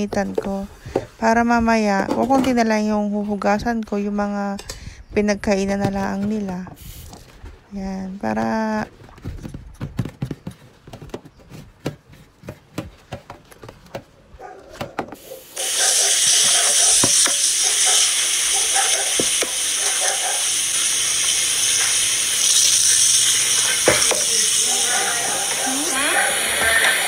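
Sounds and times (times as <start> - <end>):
tap water running into sink: 16.4 - 27.0.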